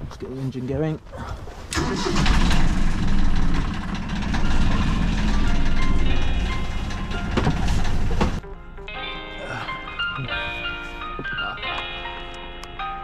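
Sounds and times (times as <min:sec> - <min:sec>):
boat engine rumbling: 0:01.8 - 0:08.4
background music: 0:04.5 - 0:13.0.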